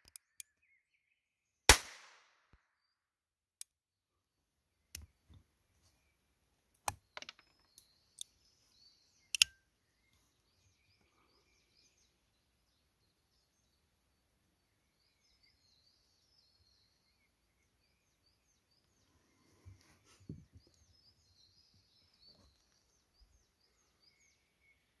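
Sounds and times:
birds chirping: 0:04.8 - 0:25.0
pistol metallic clicks: 0:09.3 - 0:09.6.

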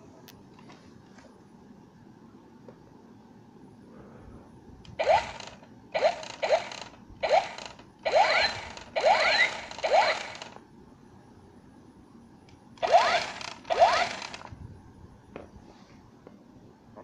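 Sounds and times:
toy blaster zapping shots: 0:05.0 - 0:10.6, 0:12.8 - 0:14.5.

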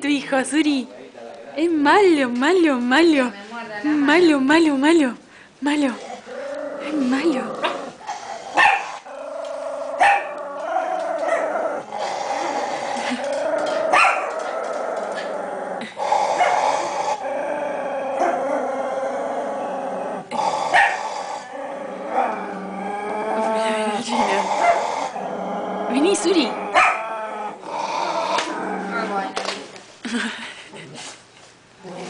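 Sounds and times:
dog growling: 0:05.8 - 0:29.8, 0:31.8 - 0:32.0
dog barking sharply: 0:08.6 - 0:09.0.

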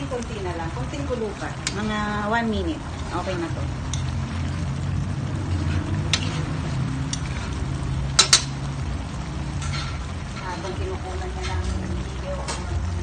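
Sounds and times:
ladle tapping wok: 0:01.4 - 0:04.6, 0:05.4 - 0:12.8
metal ladle clinking in wok: 0:08.1 - 0:08.6.

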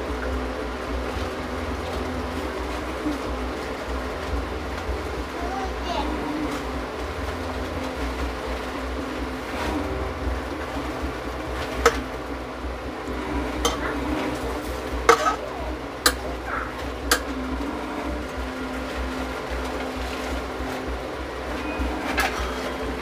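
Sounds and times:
steady low hum: 0:00.0 - 0:23.0
skimmer clinking against metal pots: 0:13.2 - 0:23.0.

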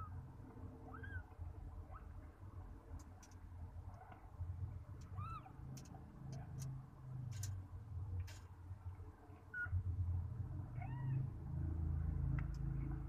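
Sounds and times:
low continuous rumble: 0:00.0 - 0:13.0
cat squeaking: 0:00.8 - 0:02.2, 0:05.0 - 0:05.8, 0:09.5 - 0:09.8, 0:10.8 - 0:11.2.

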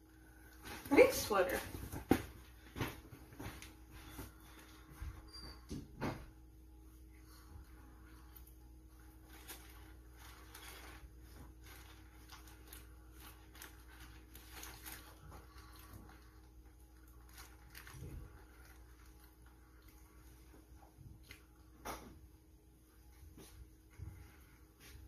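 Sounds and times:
paper wrapper rustling: 0:08.1 - 0:21.7.

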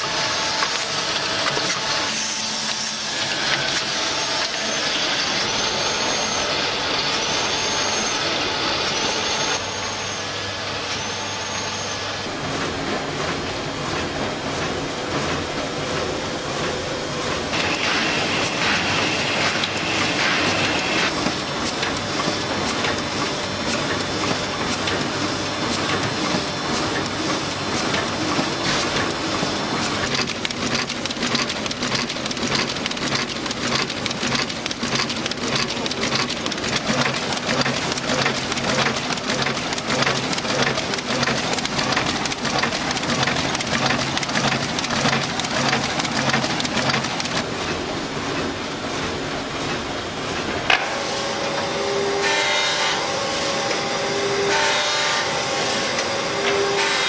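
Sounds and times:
high machine whine: 0:00.0 - 0:14.4, 0:15.1 - 0:47.6, 0:50.7 - 0:57.0
machine mechanical clatter: 0:10.8 - 0:51.0.

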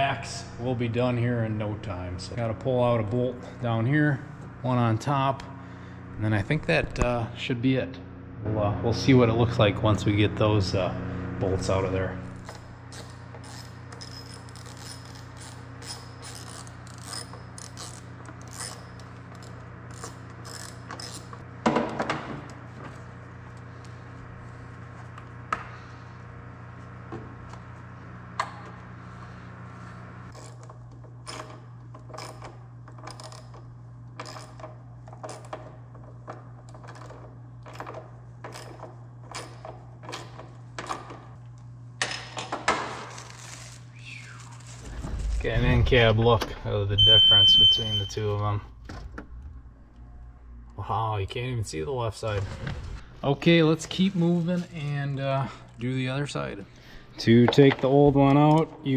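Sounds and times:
low hum: 0:00.0 - 0:21.6, 0:43.1 - 0:54.7.

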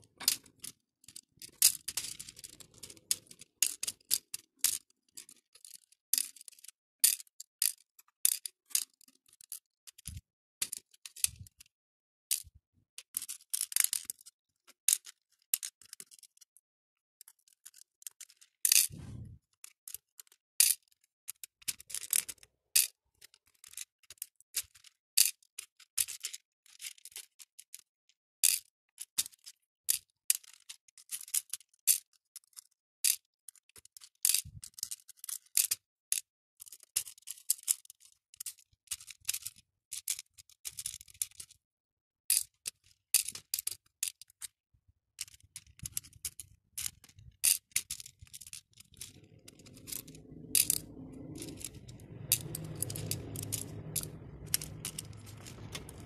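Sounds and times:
faint low rumble: 0:18.9 - 0:19.4, 0:48.7 - 0:56.0.

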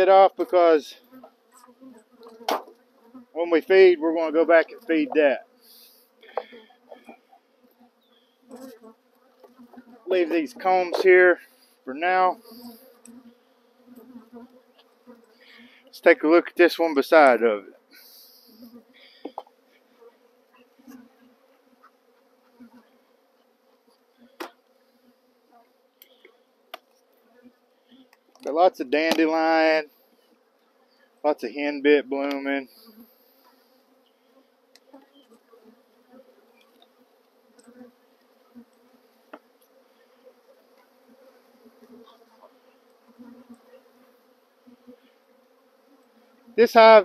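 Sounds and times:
bees buzzing: 0:00.0 - 0:47.0.

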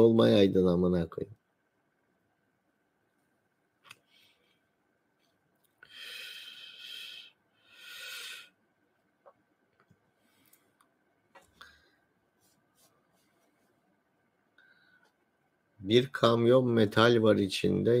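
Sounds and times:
man blowing out breath: 0:05.8 - 0:08.6.

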